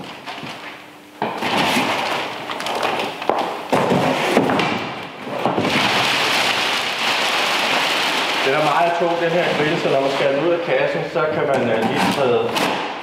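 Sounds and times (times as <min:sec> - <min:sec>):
cardboard pieces knocking: 0:01.3 - 0:08.2
plastic film crinkling: 0:01.4 - 0:04.7, 0:05.4 - 0:10.6.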